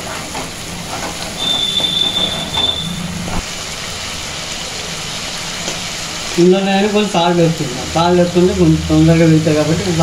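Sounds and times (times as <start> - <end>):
paste sizzling in hot oil: 0.0 - 10.0
steady high squeal: 1.4 - 3.4.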